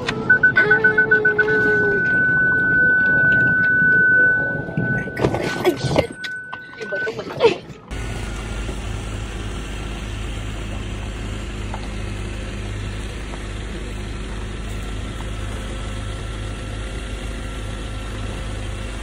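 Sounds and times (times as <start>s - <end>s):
vehicle engine idling: 7.8s - 19.0s.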